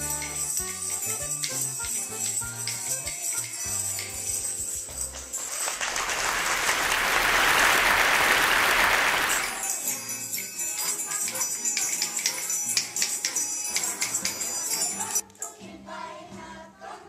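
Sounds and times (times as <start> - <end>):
children's music with tambourine: 0.0 - 17.0
audience applause: 5.4 - 9.6.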